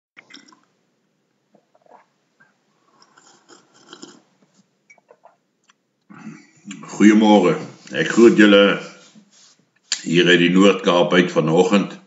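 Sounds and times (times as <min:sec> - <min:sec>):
man sipping and swallowing: 0:00.2 - 0:00.8, 0:01.5 - 0:06.8.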